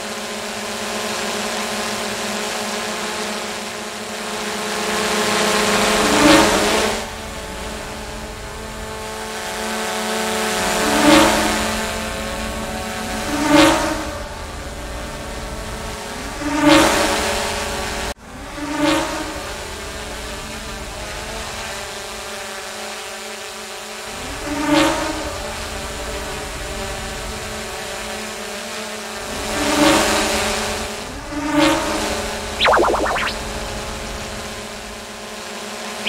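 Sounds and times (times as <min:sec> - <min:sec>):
drone buzzing: 0:32.6 - 0:33.4.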